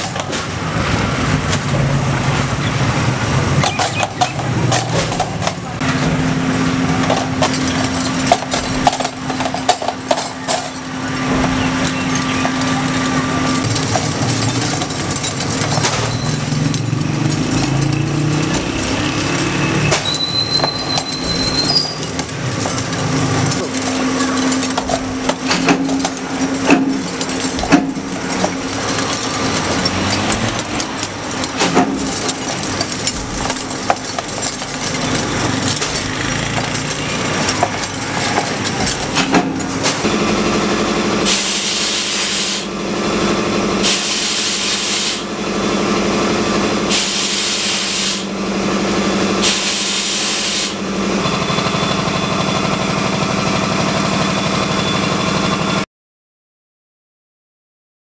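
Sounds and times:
teaspoons clattering in rotating drum: 3.6 - 5.8, 7.0 - 40.1
hissing spray bursts: 41.3 - 42.7, 43.8 - 45.2, 46.9 - 48.3, 49.4 - 50.8.

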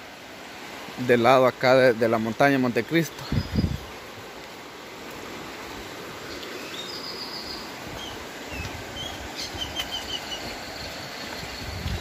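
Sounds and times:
river rushing: 0.0 - 12.0
birds chirping: 2.5 - 4.0, 5.6 - 12.0.

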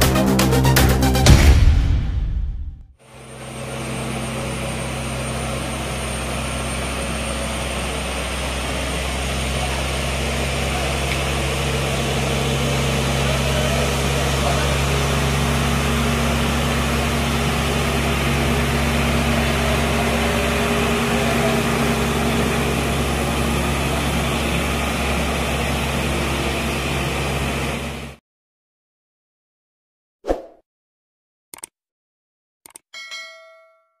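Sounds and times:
diesel engine running under load: 3.0 - 28.2.

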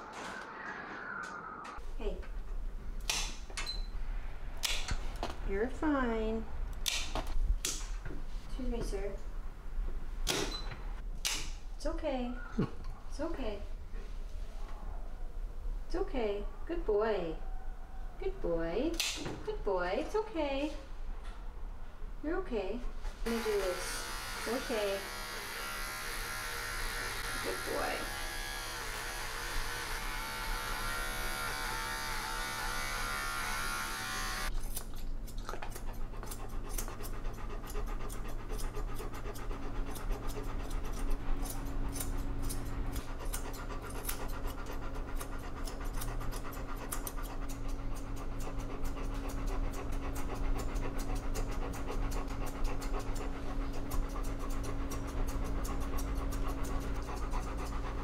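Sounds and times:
scissors snipping fur: 6.8 - 7.9, 34.5 - 58.0
electric clipper buzzing: 23.3 - 34.5
dog panting: 35.3 - 58.0.

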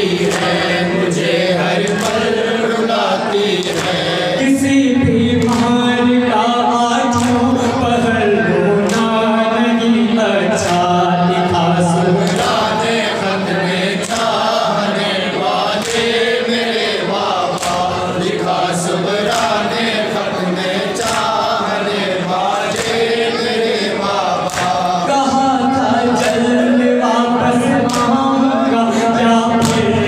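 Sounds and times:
lead reciter on microphone: 0.0 - 30.0
men chanting in unison: 0.0 - 30.0
hands slapping chests: 1.8 - 2.4, 3.6 - 4.1, 12.2 - 12.6, 15.6 - 16.1, 17.5 - 17.9, 19.2 - 19.6, 21.0 - 21.4, 24.4 - 25.0.

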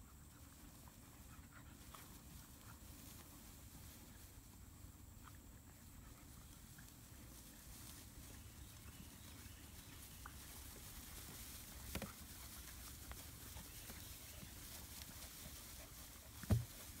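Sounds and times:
dogs rustling in grass: 0.0 - 17.0.

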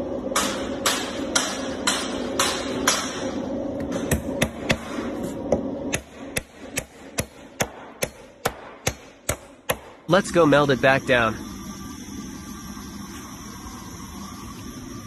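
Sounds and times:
hammer striking nail into wood: 5.9 - 10.0.

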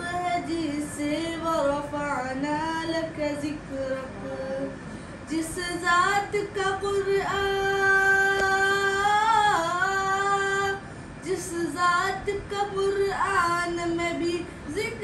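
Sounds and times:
boy singing unaccompanied: 5.3 - 15.0.

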